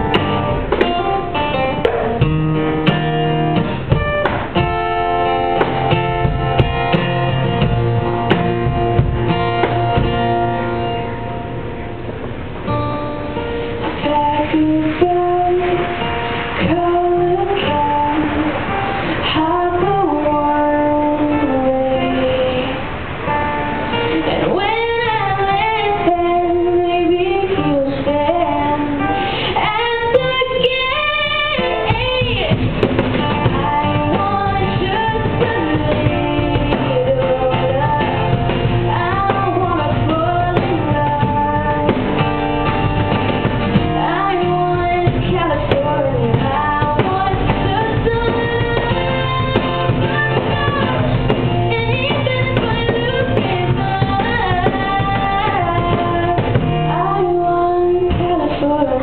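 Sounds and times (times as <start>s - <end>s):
cajon beats: 0.0s - 59.0s
strummed acoustic guitar: 0.0s - 59.0s
woman singing: 13.8s - 42.8s, 43.6s - 59.0s.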